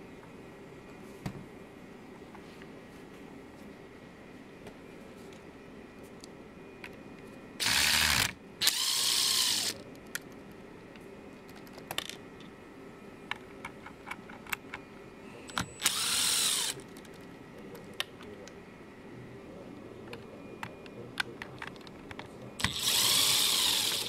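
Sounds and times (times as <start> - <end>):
cordless screwdriver whirring: 7.6 - 9.8, 15.8 - 16.8, 22.6 - 24.0.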